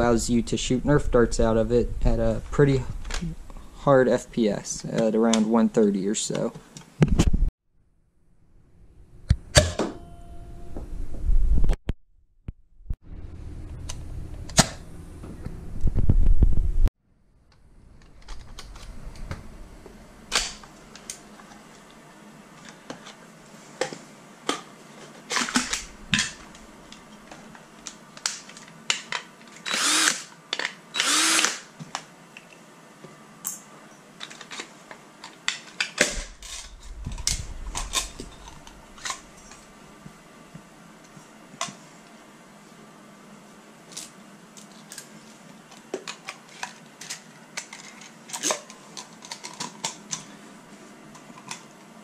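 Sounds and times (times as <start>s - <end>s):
cordless drill running: 29.7s - 30.3s, 31.0s - 31.6s.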